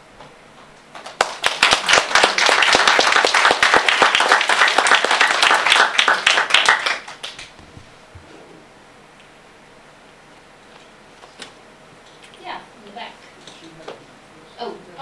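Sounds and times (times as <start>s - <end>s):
audience applauding: 1.0s - 7.5s.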